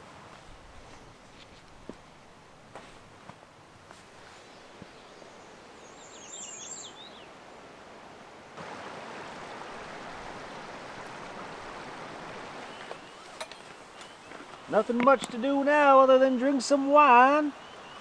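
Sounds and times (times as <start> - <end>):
river water rushing: 3.6 - 18.0
songbird chirping: 4.2 - 8.0, 9.3 - 18.0.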